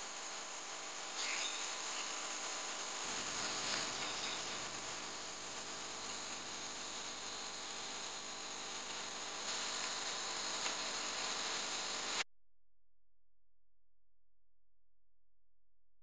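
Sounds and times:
insects chirping in a field: 0:01.2 - 0:02.2.

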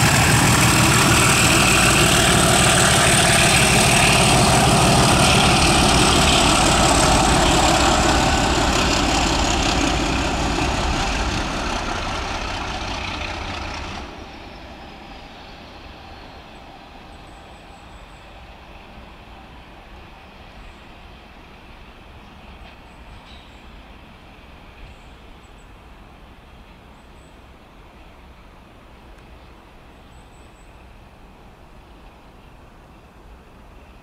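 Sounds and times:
diesel locomotive engines running: 0:00.0 - 0:29.7.

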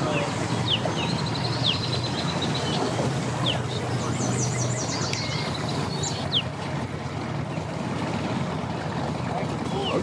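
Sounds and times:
birds chirping: 0:00.0 - 0:07.9
outboard motor humming: 0:00.0 - 0:10.0.

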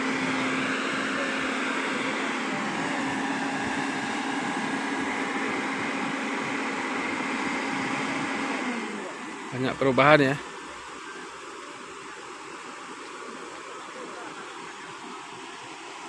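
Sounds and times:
excavator engine humming: 0:00.0 - 0:16.0.

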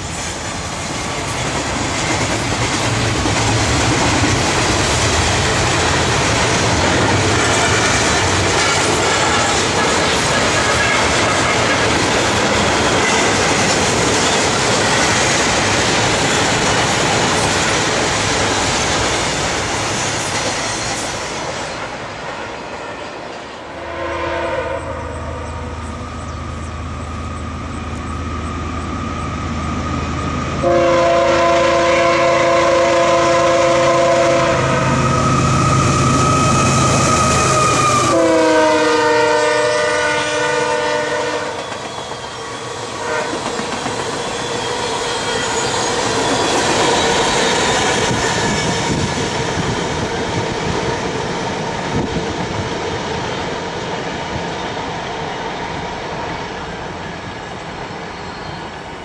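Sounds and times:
freight cars rumbling on rails: 0:00.0 - 0:22.6, 0:24.8 - 0:59.0
locomotive air horn blasts: 0:23.7 - 0:25.9, 0:30.6 - 0:41.6, 0:43.0 - 0:43.4
locomotive engine rumble: 0:24.9 - 0:30.8.

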